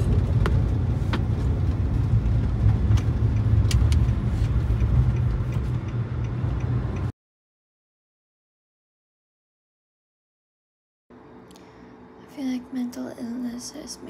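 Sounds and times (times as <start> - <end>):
car road and engine rumble: 0.0 - 7.1.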